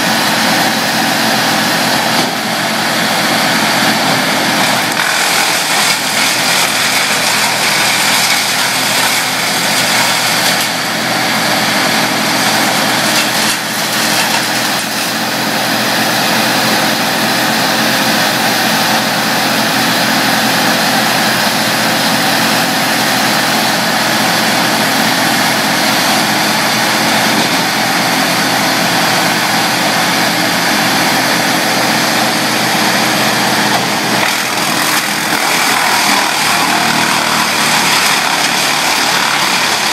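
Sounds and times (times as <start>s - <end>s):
wood chipper running: 0.0s - 39.9s.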